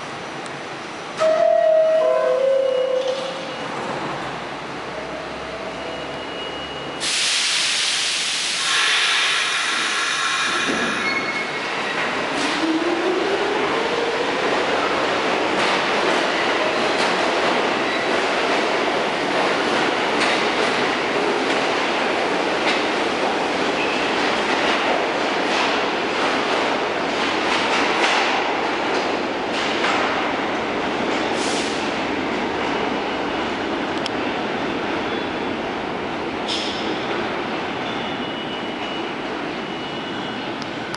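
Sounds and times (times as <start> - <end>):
subway train wheels on rail: 0.0 - 40.9
air brakes hissing: 6.8 - 11.3, 31.4 - 32.0.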